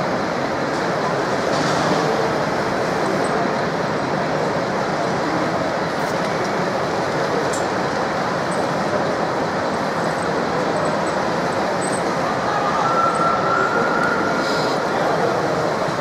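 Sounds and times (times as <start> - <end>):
din of busy exhibition hall: 0.0 - 16.0
hydraulic pump whine: 5.9 - 16.0.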